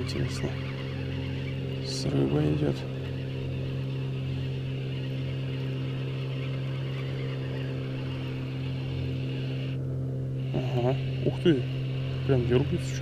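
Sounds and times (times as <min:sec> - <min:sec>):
steady engine drone: 0:00.0 - 0:13.0.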